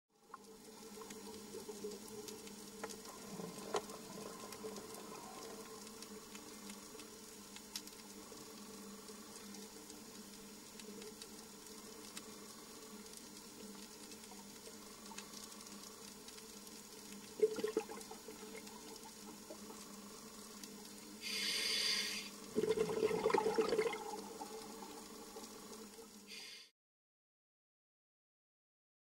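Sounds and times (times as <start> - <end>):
exhaled bubbles rushing: 17.4 - 18.9, 22.5 - 25.3
diver breathing through regulator: 21.2 - 22.4.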